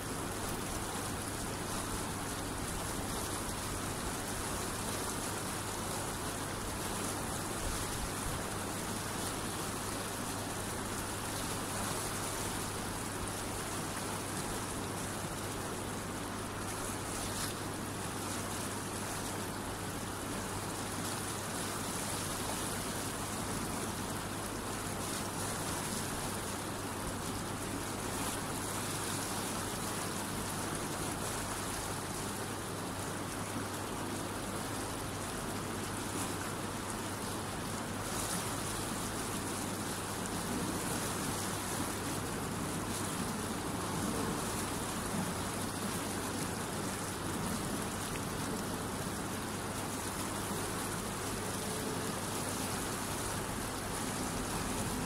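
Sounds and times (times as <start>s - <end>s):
water rushing through weir: 0.0s - 55.0s.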